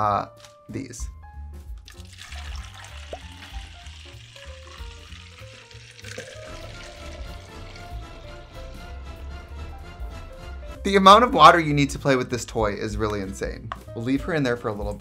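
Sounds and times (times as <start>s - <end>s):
water pouring into plastic tube: 1.8s - 8.7s.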